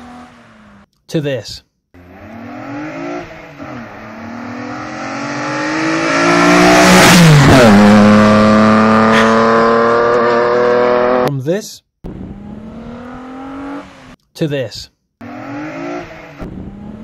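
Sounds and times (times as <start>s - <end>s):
car driving past: 2.0s - 11.2s.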